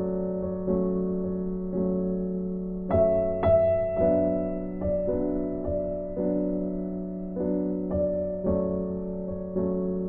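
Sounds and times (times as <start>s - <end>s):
slow piano melody: 0.0s - 10.0s.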